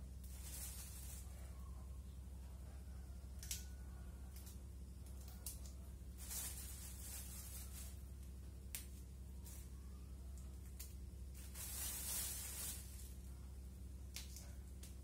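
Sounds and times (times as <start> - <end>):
steady low hum: 0.0 - 15.0
soft rustles: 0.2 - 1.6, 6.1 - 8.2, 11.3 - 13.4
green beans snapping: 3.4 - 5.9, 8.7 - 9.0, 10.4 - 11.0, 14.0 - 15.0.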